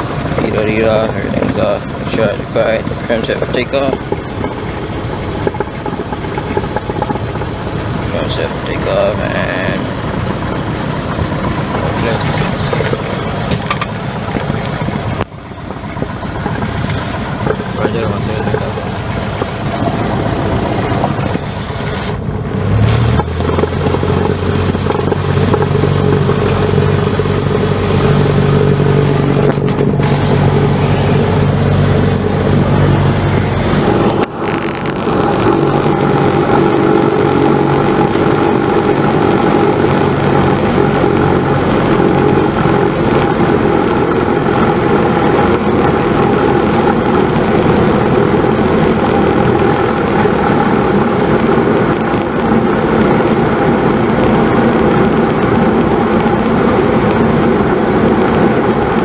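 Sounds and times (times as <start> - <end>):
light aircraft engine and propeller: 0.0 - 59.0.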